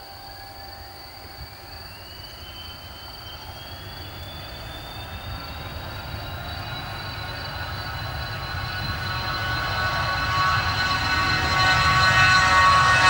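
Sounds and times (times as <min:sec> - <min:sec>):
jet engines whining at takeoff: 0:00.0 - 0:13.0.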